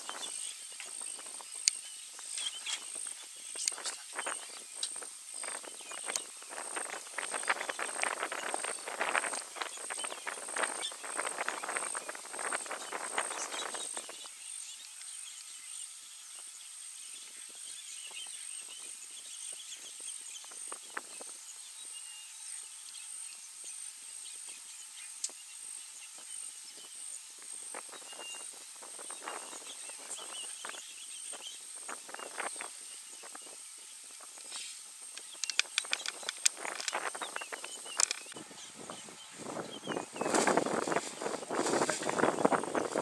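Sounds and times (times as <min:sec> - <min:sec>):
rustling and crackling in dry grass: 0:00.0 - 0:14.3, 0:27.4 - 0:43.0
steady high hiss: 0:00.0 - 0:43.0.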